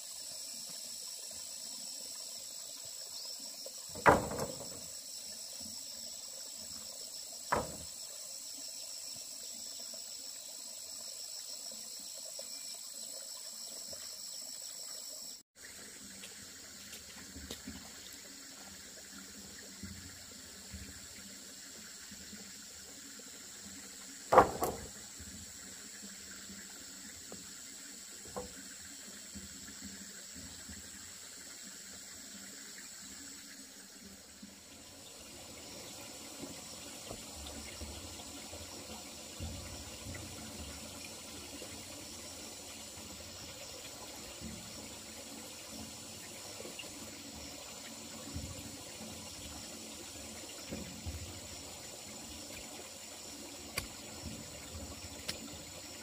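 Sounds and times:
water running: 0.0 - 56.0
knocks: 4.0 - 4.9, 7.5 - 7.9, 24.3 - 24.9.

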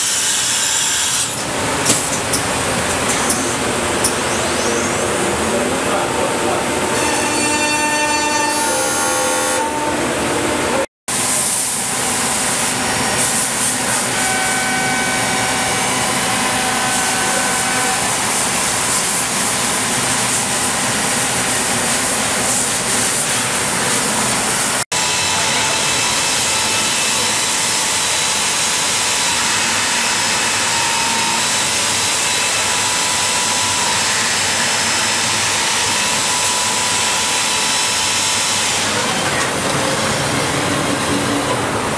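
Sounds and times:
router cutting wood with whine: 25.0 - 41.8.

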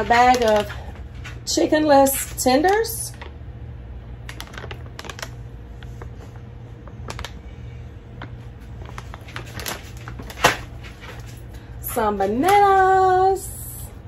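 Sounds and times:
plastic pouch crinkling: 0.0 - 1.2, 4.2 - 11.5.

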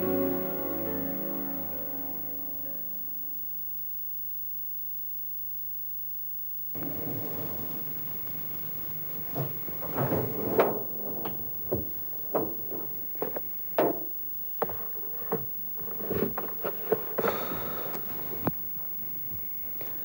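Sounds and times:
drawer sliding: 6.8 - 18.5.

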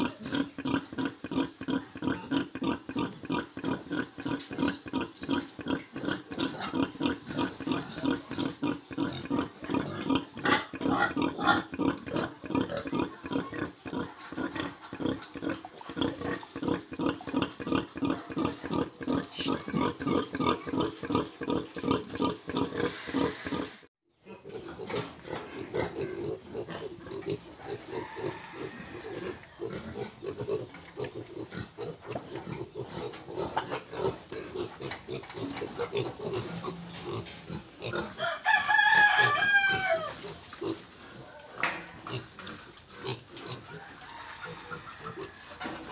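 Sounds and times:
pig squeal: 0.0 - 30.6, 31.4 - 42.3, 43.0 - 45.9
piglets grunting: 0.0 - 45.9
sow grunting: 17.0 - 23.8.

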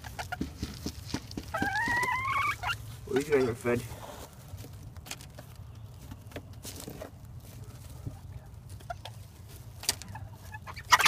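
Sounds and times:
chickens pecking taps: 0.0 - 3.3, 8.0 - 11.0.

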